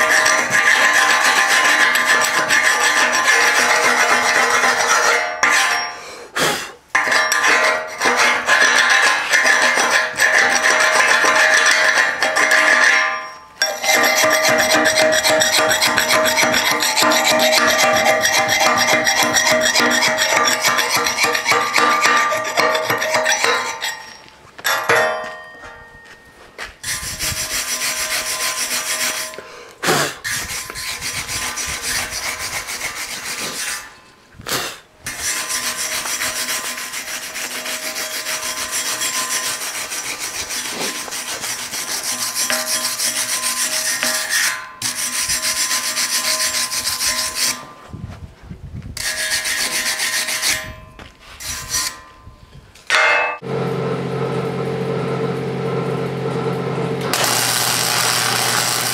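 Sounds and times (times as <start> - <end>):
wire brush scrubbing metal: 0.0 - 6.0, 7.0 - 24.2, 26.8 - 29.4, 30.2 - 34.0, 35.1 - 47.8, 49.0 - 52.0, 57.1 - 58.9.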